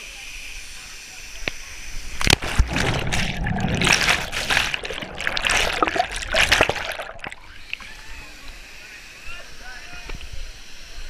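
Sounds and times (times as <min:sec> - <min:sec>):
underwater bubbling and rushing: 0:02.1 - 0:07.8
person splashing into water: 0:02.2 - 0:07.5.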